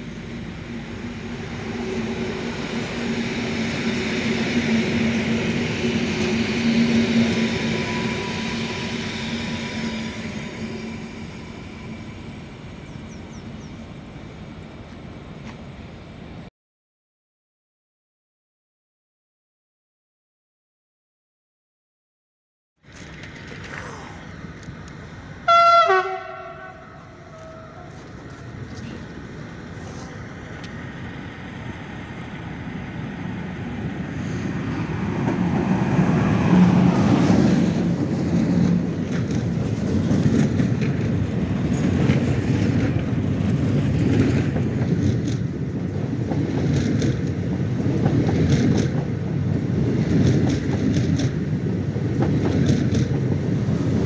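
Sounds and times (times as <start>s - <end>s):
freight train wheels rumbling and clicking: 0.0s - 16.5s, 22.9s - 54.0s
locomotive horn blast: 25.5s - 28.1s.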